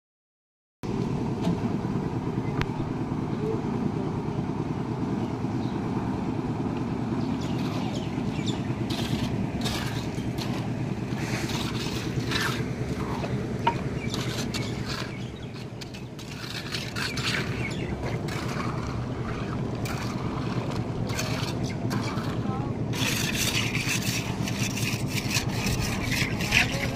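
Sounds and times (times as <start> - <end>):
concrete mixer engine running: 0.9 - 26.9
scrapes and knocks: 7.4 - 26.9.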